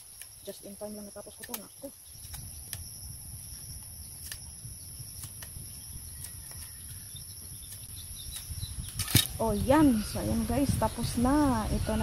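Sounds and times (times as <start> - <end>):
knife cutting bamboo clicks: 1.3 - 2.9, 3.8 - 4.5, 5.1 - 7.0.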